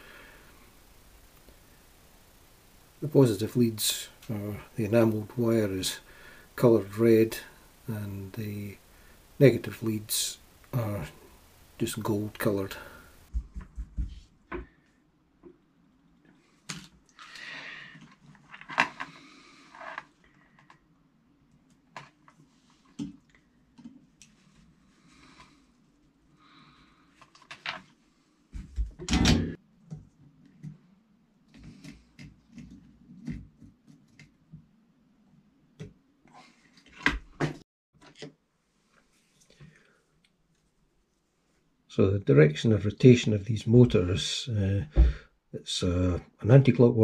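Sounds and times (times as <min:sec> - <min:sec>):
soft hissing rustles: 0:00.0 - 0:13.4.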